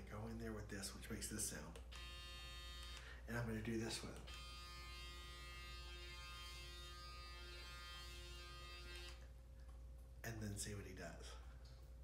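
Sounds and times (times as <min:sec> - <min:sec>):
electric shaver buzzing: 0:01.9 - 0:03.1, 0:04.2 - 0:09.2.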